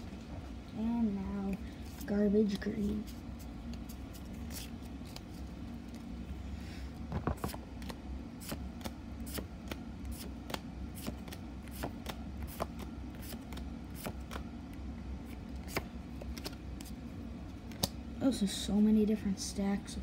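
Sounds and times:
steady low hum: 0.0 - 20.0
trading cards snapping: 7.4 - 14.4, 17.7 - 18.0.

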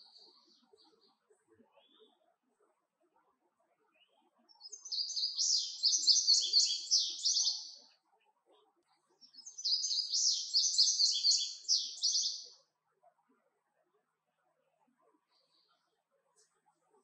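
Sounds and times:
bird singing high repeated notes: 4.6 - 7.7, 9.3 - 12.5.

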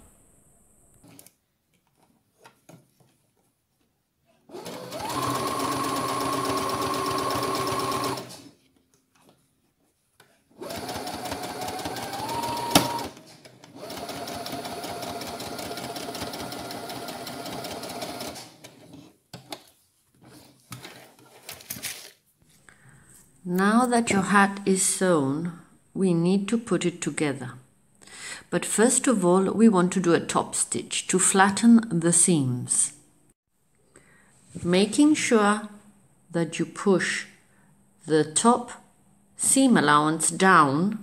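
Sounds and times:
sewing machine stitching: 4.5 - 8.6, 10.5 - 19.6.

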